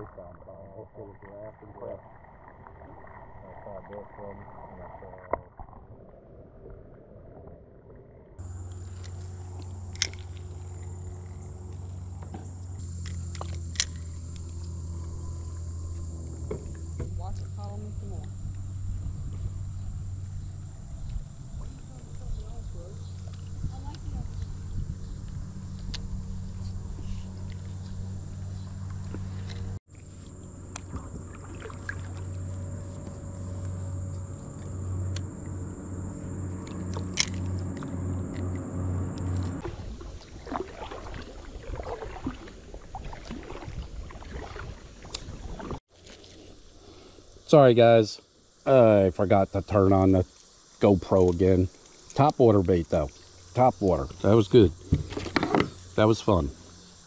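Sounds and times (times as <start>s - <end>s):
insects droning: 0.0s - 5.3s, 8.4s - 57.0s
low steady hum: 6.5s - 45.8s
fishing reel gear whirring: 8.4s - 21.5s, 22.8s - 39.7s.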